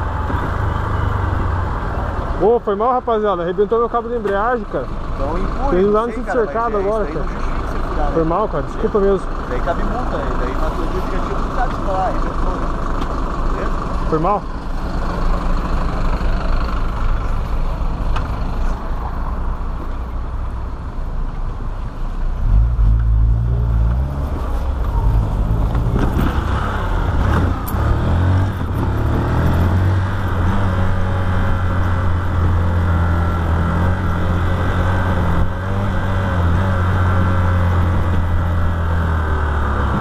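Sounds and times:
motorcycle engine accelerating: 22.5s - 40.0s.

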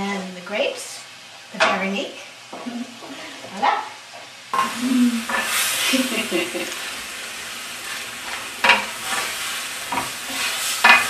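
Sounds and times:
steady sizzle: 0.0s - 11.0s
utensil scraping pan: 4.6s - 6.7s, 7.8s - 11.0s
utensil stirring sauce in pan: 4.6s - 11.0s.

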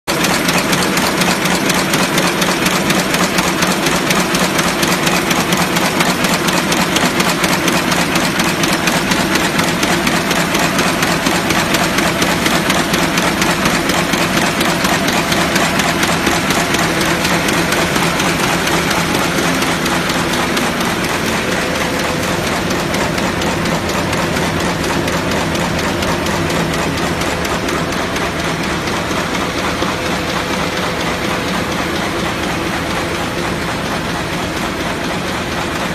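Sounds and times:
rapid mechanical machine clatter: 0.0s - 35.9s.

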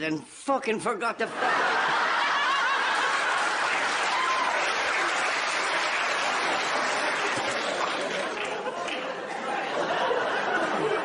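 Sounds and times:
audience laughing and applauding: 1.3s - 11.0s.

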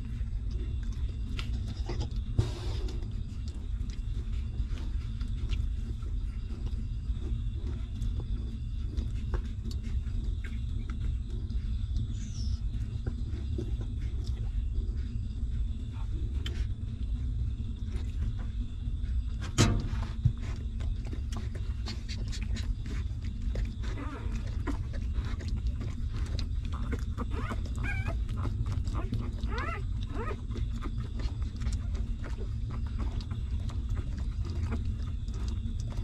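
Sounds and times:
puppies suckling wet clicks: 0.0s - 36.0s
steady low rumble: 0.0s - 36.0s
puppy whimpers: 26.2s - 34.9s.

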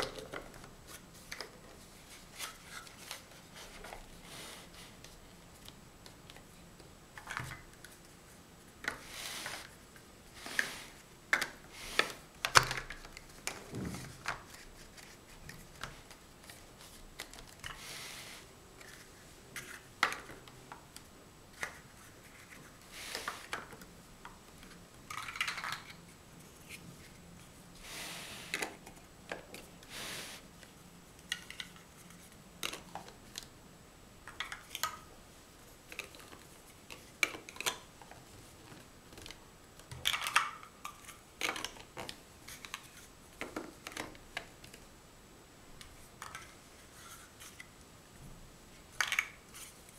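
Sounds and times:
plastic blocks clicking and knocking: 11.3s - 16.6s, 18.8s - 26.0s, 31.2s - 33.5s, 34.2s - 35.1s, 35.8s - 44.8s, 48.9s - 49.7s.

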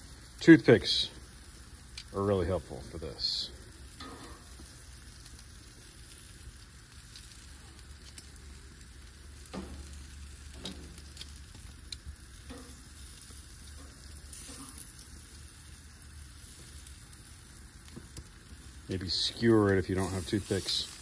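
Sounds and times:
meat sizzling on a grill: 0.0s - 21.0s.

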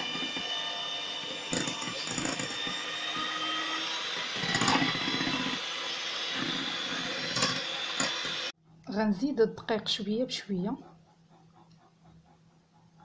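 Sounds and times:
electric hand mixer whisking: 0.0s - 8.6s.

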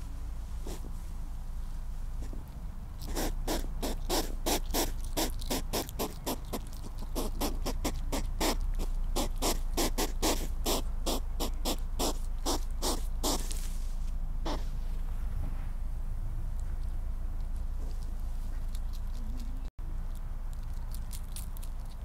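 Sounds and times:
hedgehog sniffing and snorting: 0.6s - 1.0s, 2.2s - 13.8s, 14.4s - 14.8s.

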